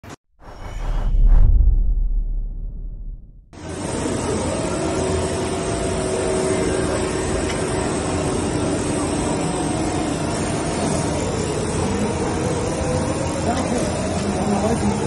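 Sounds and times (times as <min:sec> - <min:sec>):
machine-shop hum and hiss: 0:03.6 - 0:15.0.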